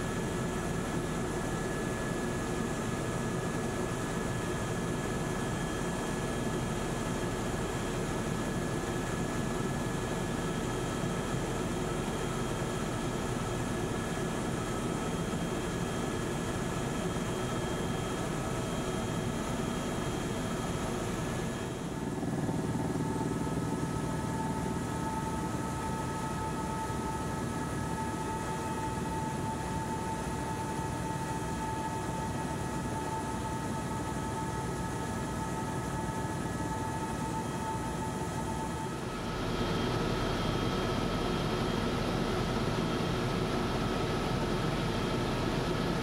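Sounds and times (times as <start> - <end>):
helicopter cabin drone: 0.0 - 46.0.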